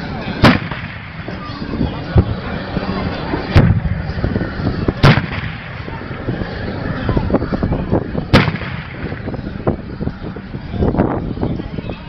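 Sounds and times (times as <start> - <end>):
loud bangs: 0.4 - 2.6, 3.2 - 7.1, 8.2 - 9.8.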